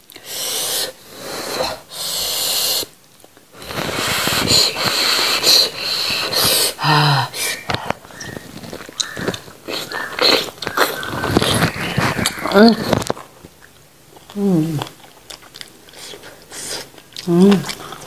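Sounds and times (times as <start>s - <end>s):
sharp hissy breaths: 0.2s - 8.2s
person humming: 3.6s - 8.0s, 14.3s - 14.9s
wet sucking and slurping: 3.6s - 13.1s.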